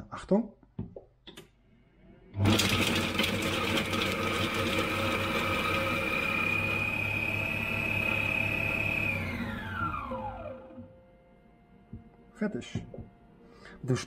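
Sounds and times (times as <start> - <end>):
food processor blade whine: 2.4 - 10.9.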